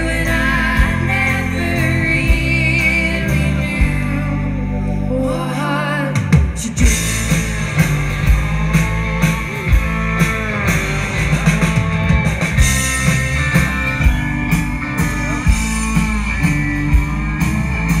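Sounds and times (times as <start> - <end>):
electric guitars bending notes: 0.0 - 18.0
drum kit steady beat: 6.2 - 18.0.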